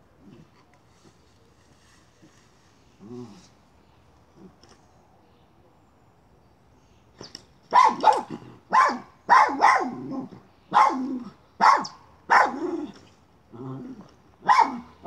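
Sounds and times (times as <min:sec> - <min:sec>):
dog barking: 0:07.7 - 0:12.8, 0:14.4 - 0:15.0.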